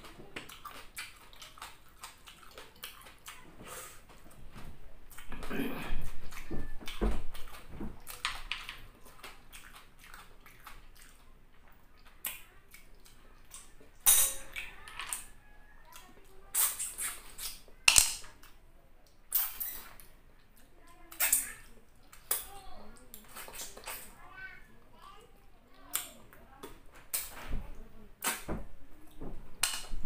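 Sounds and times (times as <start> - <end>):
chewing: 0.0 - 4.4, 5.1 - 24.2
wet mouth clicks: 16.5 - 17.6, 19.3 - 20.1, 21.1 - 22.5, 28.2 - 28.5.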